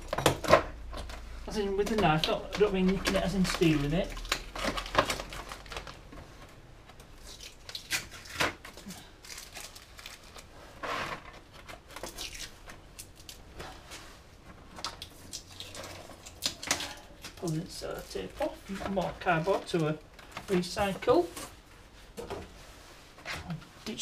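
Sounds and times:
cardboard rustling: 0.3 - 7.3, 17.4 - 24.0
tape tearing: 7.0 - 13.4.

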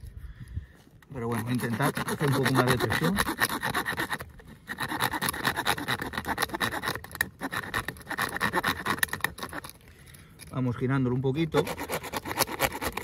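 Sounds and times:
saw cutting plastic pipe: 1.2 - 9.8, 11.4 - 13.0.

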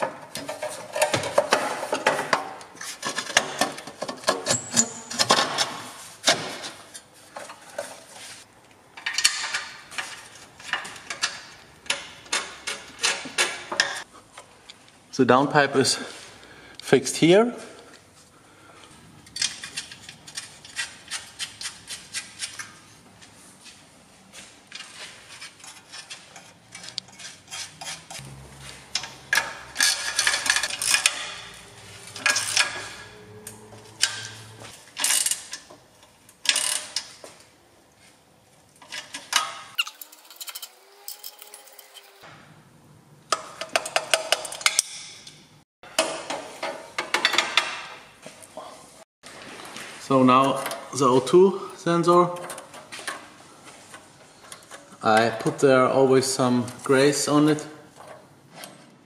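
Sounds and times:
metal tools clanking: 3.0 - 5.6, 24.7 - 35.7, 38.8 - 42.2.

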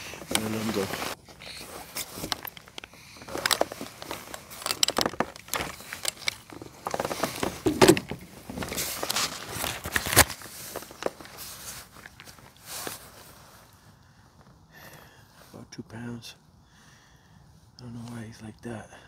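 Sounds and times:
rustling of fishing gear: 0.0 - 14.7.

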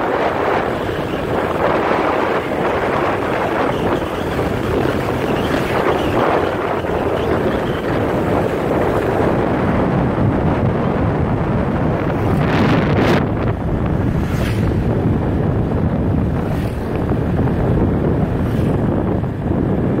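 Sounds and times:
road noise: 0.0 - 20.0
wind roaring over microphone: 0.0 - 20.0.

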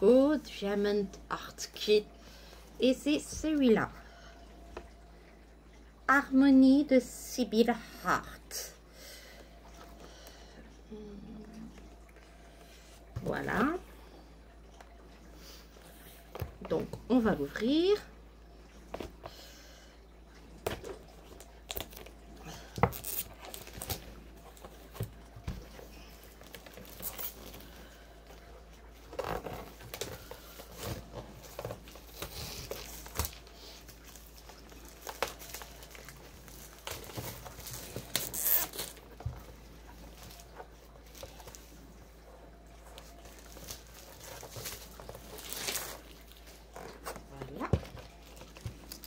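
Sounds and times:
plastic shrink-wrap crackling: 21.3 - 25.0, 25.8 - 27.9, 29.0 - 41.8, 43.0 - 49.0.

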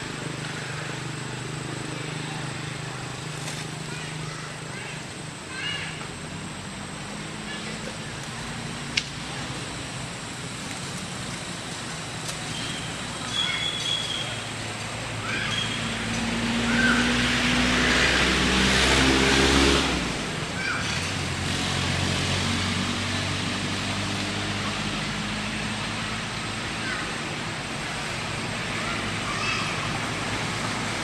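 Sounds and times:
short high squeaks: 12.5 - 14.4
motor vehicle passing: 12.6 - 26.9.

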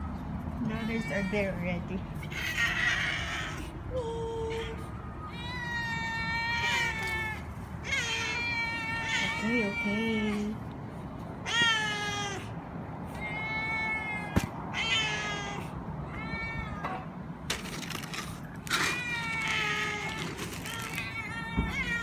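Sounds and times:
cats meowing: 4.5 - 10.6, 11.4 - 12.5, 13.1 - 17.1, 18.5 - 22.0.

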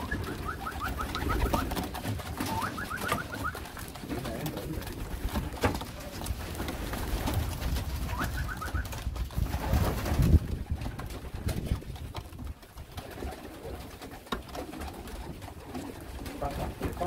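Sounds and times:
pigeons cooing: 0.0 - 17.0
wing flaps: 0.0 - 17.0.

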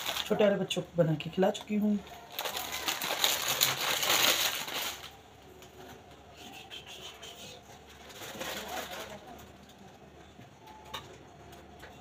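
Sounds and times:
plastic wrapper crinkling: 0.0 - 0.7, 1.5 - 5.2, 7.9 - 9.5.

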